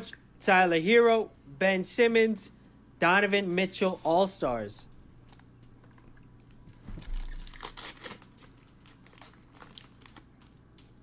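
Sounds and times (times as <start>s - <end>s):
foil wrapper crinkling: 6.5s - 11.0s.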